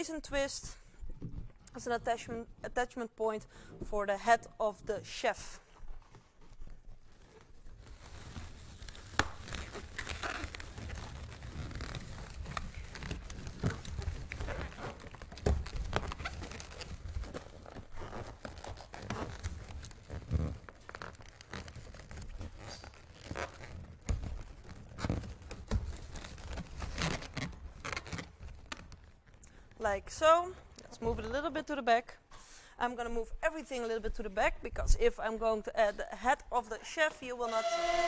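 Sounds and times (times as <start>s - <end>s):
balloons rubbing and squeaking: 5.4s - 29.4s, 37.2s - 38.0s
balloon creaks and knocks: 6.0s - 29.4s.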